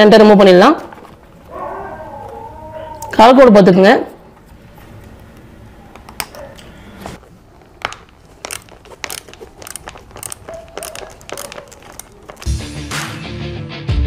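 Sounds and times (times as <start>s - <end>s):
hands handling plastic wiring: 6.0s - 12.5s
background music: 12.5s - 14.0s.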